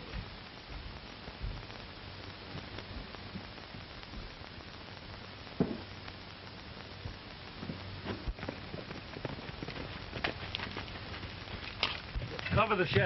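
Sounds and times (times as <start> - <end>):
film soundtrack hiss and hum: 0.0 - 13.0
short thump: 5.6 - 5.9.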